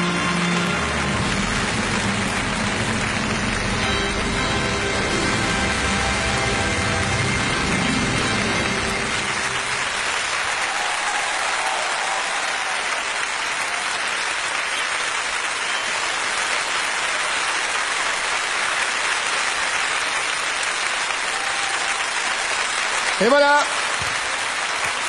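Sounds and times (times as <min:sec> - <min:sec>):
music: 0:00.0 - 0:10.7
audience applauding: 0:00.0 - 0:25.0.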